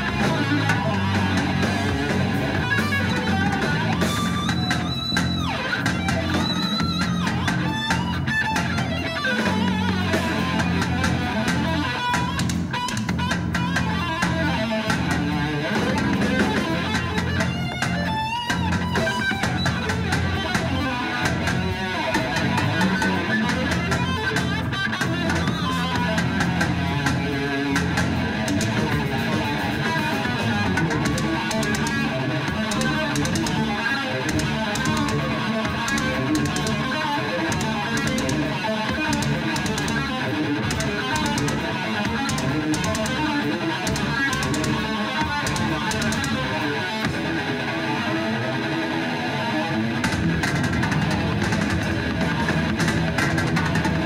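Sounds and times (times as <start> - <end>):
drum kit: 0.0 - 49.1, 49.9 - 54.0
bass guitar: 0.0 - 54.0
electric guitar: 0.0 - 54.0.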